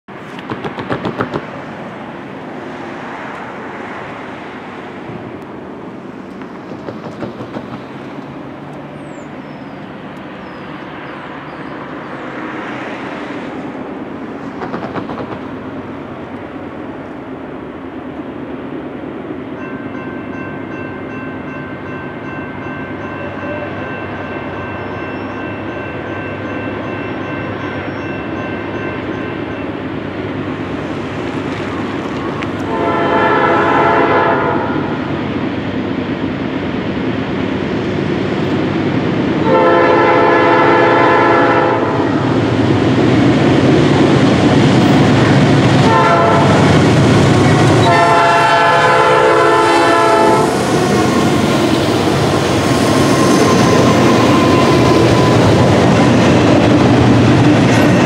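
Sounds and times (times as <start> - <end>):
train rumble: 0.1 - 58.0
locomotive air horn chord: 32.7 - 35.0, 39.4 - 42.2, 45.8 - 46.7, 47.4 - 51.2.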